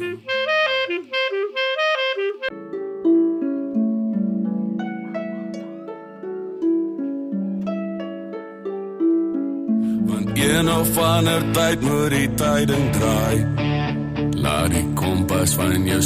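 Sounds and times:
clarinet playing short notes: 0.0s - 2.8s.

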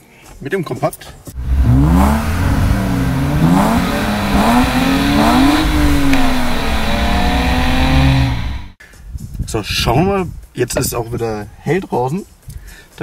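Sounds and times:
car engine revving: 1.4s - 8.8s.

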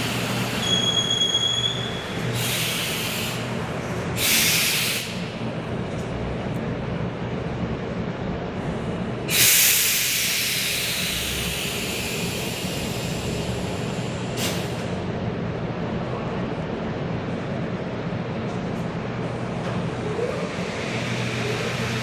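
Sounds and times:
train low hum: 0.0s - 22.0s
compressed air hiss: 2.4s - 3.5s, 4.2s - 5.3s, 9.3s - 14.9s.

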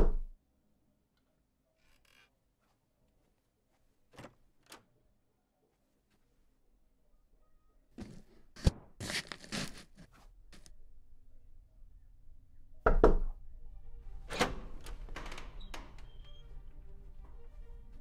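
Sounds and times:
cardboard scraping and tearing: 8.0s - 10.7s.

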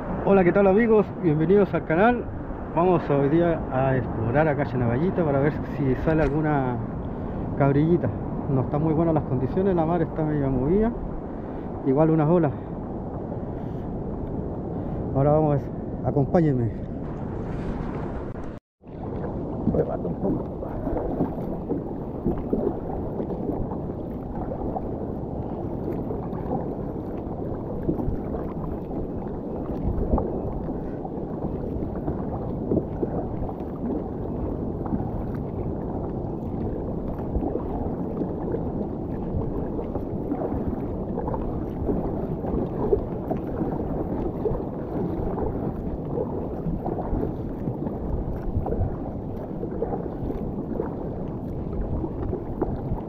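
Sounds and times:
water sloshing against kayak hull: 16.8s - 53.0s
paddle splashes and knocks: 17.0s - 53.0s.

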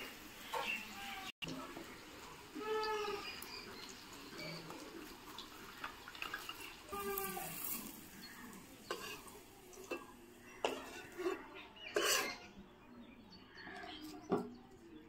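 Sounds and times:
metal utensils clinking on a wok: 2.6s - 12.6s.

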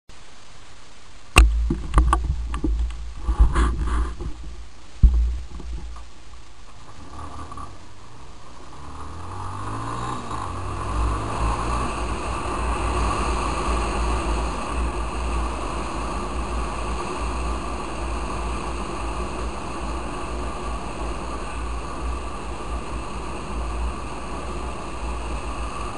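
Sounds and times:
wind and road noise: 0.1s - 25.9s
knocks on microphone: 1.4s - 6.0s
motorcycle engine: 1.4s - 25.9s.

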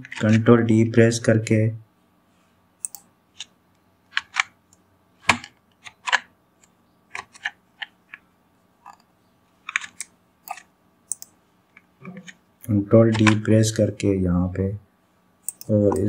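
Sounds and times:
keyboard and mouse clicking: 2.8s - 3.5s, 9.7s - 12.4s, 15.4s - 16.0s.

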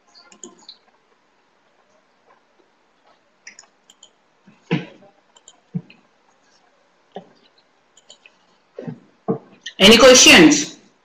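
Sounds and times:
faint clicks: 3.0s - 4.2s, 5.3s - 6.4s, 7.9s - 8.4s.

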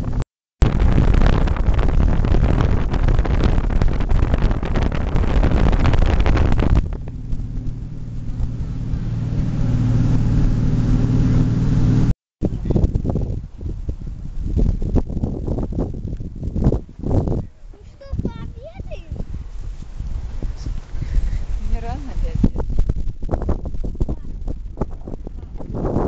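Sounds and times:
water rushing past hull: 0.0s - 26.0s
wind buffeting microphone: 0.0s - 26.0s
ferry engines low drone: 5.6s - 12.8s.

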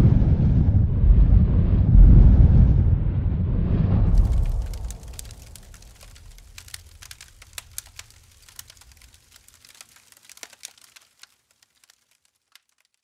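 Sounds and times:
low rumble: 0.0s - 8.0s
spark crackles: 4.1s - 13.0s.

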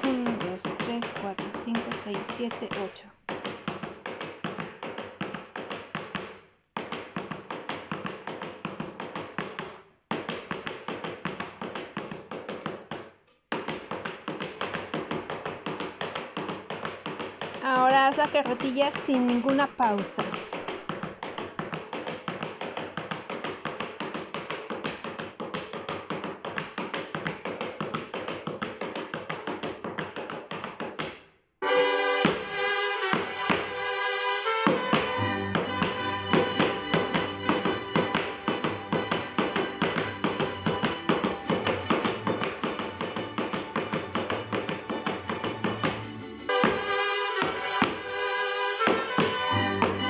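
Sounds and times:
lively latin american music: 0.0s - 2.9s, 17.6s - 20.6s, 31.6s - 50.0s
heeled shoes stamping on wood: 0.0s - 31.3s, 32.2s - 33.8s, 34.4s - 48.2s, 48.8s - 50.0s.

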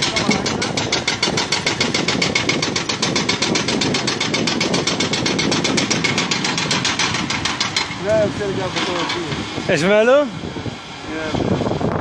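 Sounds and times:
hydraulic breaker hammering concrete: 0.0s - 9.5s
diesel engine running: 0.0s - 12.0s.

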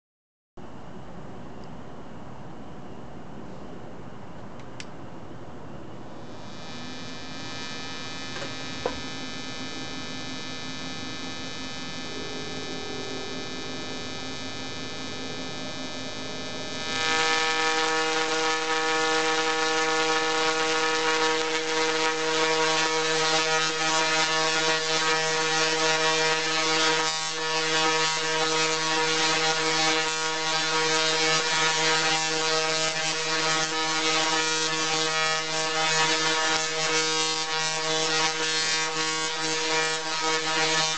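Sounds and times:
tesla coil electric buzz: 6.0s - 40.9s
sharp electric snap: 6.2s - 12.0s, 15.8s - 40.9s.

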